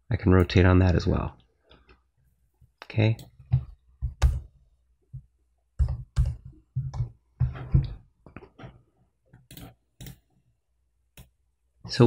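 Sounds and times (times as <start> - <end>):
computer mouse clicks: 9.3 - 10.3.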